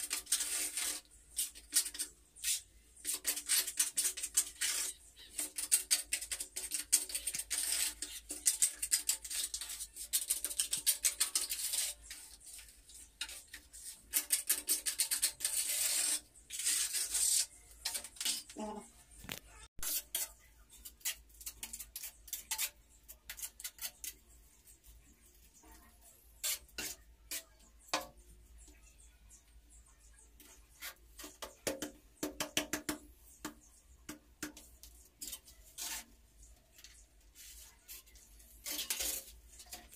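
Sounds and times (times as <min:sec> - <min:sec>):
trowel scraping wet mortar: 0:00.0 - 0:18.6, 0:19.8 - 0:24.3, 0:26.4 - 0:28.1, 0:37.6 - 0:39.9
faint music: 0:00.0 - 0:39.9.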